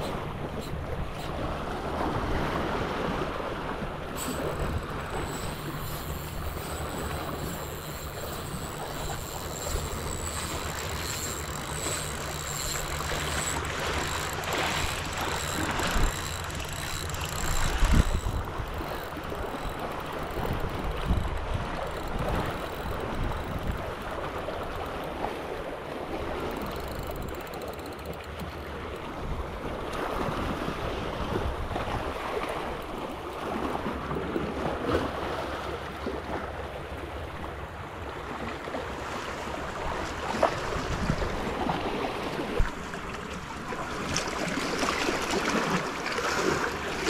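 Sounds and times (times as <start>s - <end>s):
wind buffeting microphone: 0.1s - 25.3s
faint high wavering whine: 4.1s - 25.1s
small waves lapping on rocks: 27.3s - 47.0s.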